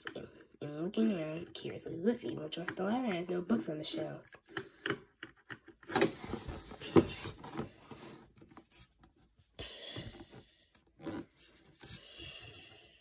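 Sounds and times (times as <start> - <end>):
book pages turning and rustling: 4.6 - 9.5.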